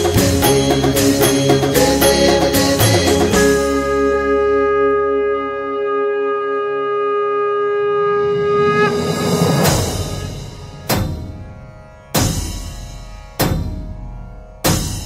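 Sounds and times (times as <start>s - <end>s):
percussion: 0.0s - 4.6s, 8.8s - 15.0s
conch shell blown note: 3.3s - 10.9s.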